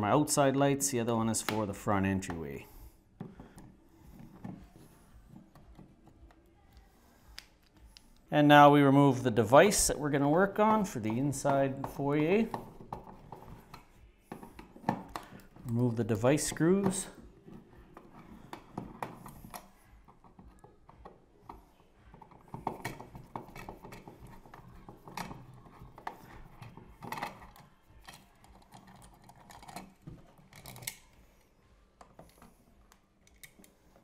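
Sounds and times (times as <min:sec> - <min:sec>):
screwdriver turning screws: 0:22.4 - 0:31.2.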